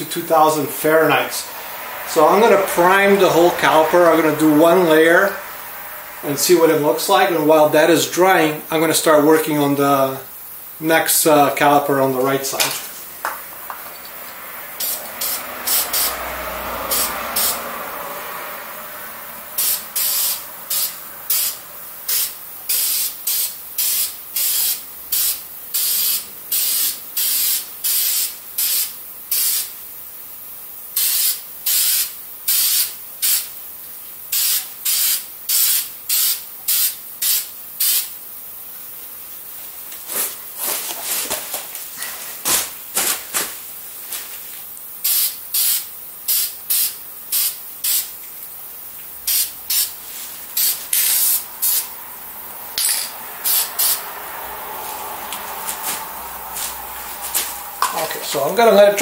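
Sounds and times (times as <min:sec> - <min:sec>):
aerosol spray can hissing: 0:14.8 - 0:17.6, 0:19.6 - 0:29.8, 0:31.0 - 0:33.6, 0:34.3 - 0:38.2, 0:45.0 - 0:48.5, 0:49.2 - 0:52.0, 0:53.4 - 0:58.2.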